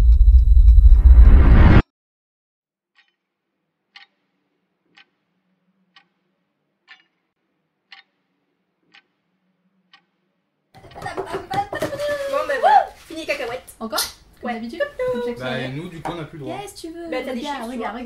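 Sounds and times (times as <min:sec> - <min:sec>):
clock ticking: 0:03.0 - 0:03.2, 0:03.9 - 0:04.2, 0:04.9 - 0:05.1, 0:05.9 - 0:06.2, 0:06.9 - 0:07.2, 0:07.9 - 0:08.2, 0:08.9 - 0:09.2, 0:09.9 - 0:10.1.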